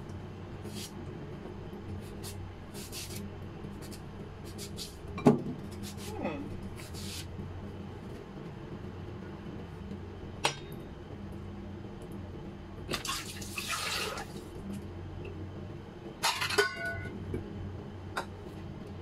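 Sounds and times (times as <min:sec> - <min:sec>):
steady low hum: 0:00.0 - 0:19.0
dish clattering with ringing note: 0:16.2 - 0:17.2.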